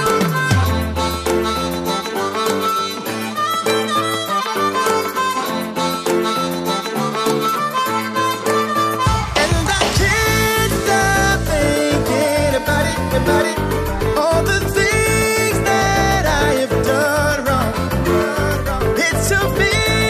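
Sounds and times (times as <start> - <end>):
instrumental music with steady beat: 0.0 - 20.0.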